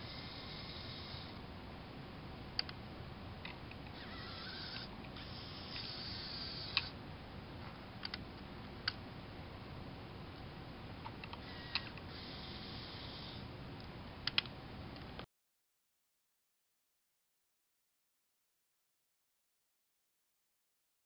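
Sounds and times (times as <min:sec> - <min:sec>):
small electric motor whirring: 0:00.0 - 0:01.4, 0:03.9 - 0:07.0, 0:11.4 - 0:13.5.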